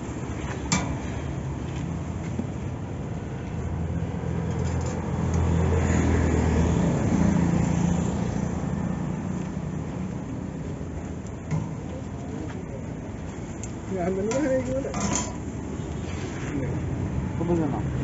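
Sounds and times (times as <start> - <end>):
street noise: 0.0 - 18.0
vehicle engine passing: 3.8 - 10.6.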